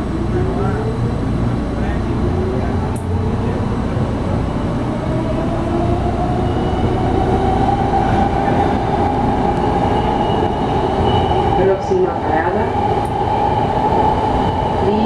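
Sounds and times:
wheels rumbling on track: 0.0s - 15.0s.

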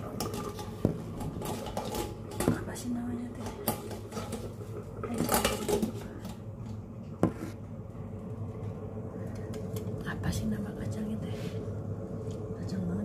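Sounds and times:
pot lid and handle rattle: 0.0s - 2.7s, 3.4s - 6.3s
steady low hum: 0.0s - 13.0s.

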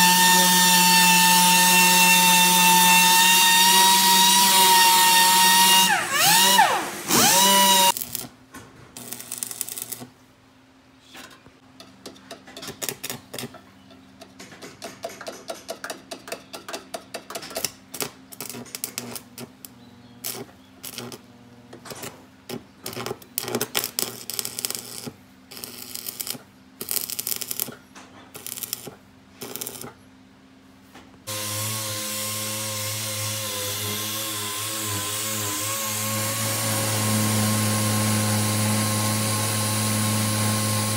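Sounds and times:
power tool whining: 0.0s - 8.0s, 31.3s - 40.9s.

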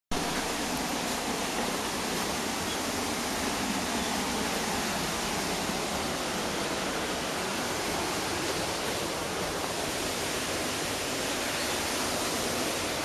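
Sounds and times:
waterfall rushing: 0.1s - 13.0s.

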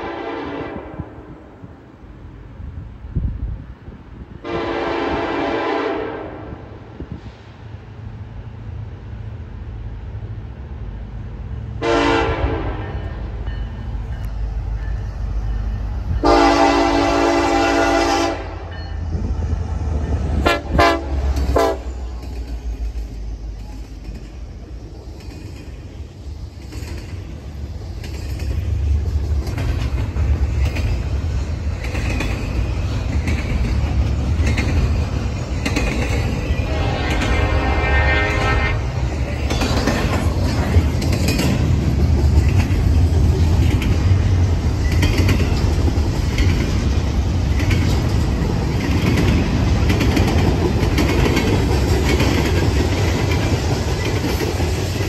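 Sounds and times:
locomotive air horn blasts: 0.0s - 1.3s, 4.4s - 6.6s, 11.8s - 13.0s, 16.2s - 18.7s, 20.4s - 22.0s, 36.6s - 39.1s
locomotives rumbling past: 4.4s - 55.0s
train wheels clattering on rails: 12.0s - 55.0s.

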